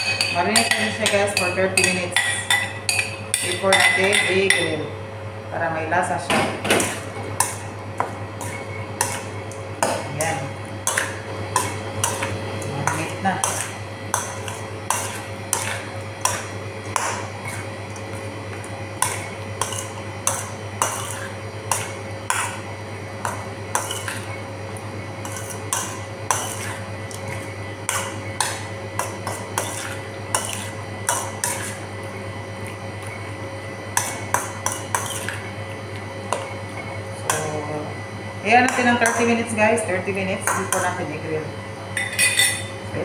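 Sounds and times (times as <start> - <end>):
metal bowl clinking: 0.0 - 4.8, 42.0 - 42.8.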